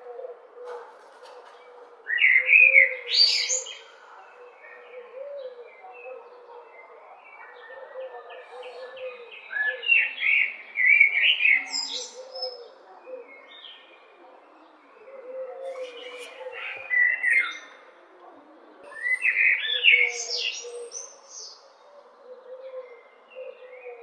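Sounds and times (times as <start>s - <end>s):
blackbird singing: 2.1s - 3.8s, 7.5s - 12.6s, 14.9s - 17.7s, 18.8s - 21.6s.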